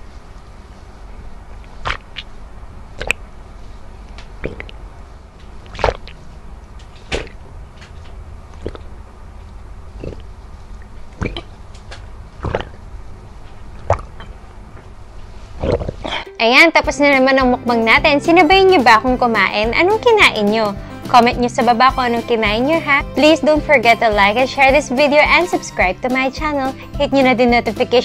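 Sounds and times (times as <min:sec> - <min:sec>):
person gulping water: 0:01.8 - 0:02.3, 0:03.0 - 0:03.2, 0:04.4 - 0:04.8, 0:05.6 - 0:06.2, 0:08.5 - 0:09.0, 0:10.0 - 0:11.6, 0:12.4 - 0:12.9, 0:13.8 - 0:14.4, 0:15.6 - 0:16.2.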